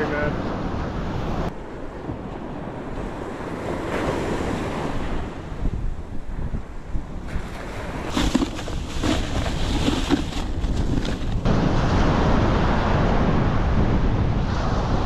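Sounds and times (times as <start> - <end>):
wind buffeting microphone: 0.0 - 15.0
surf: 7.2 - 15.0.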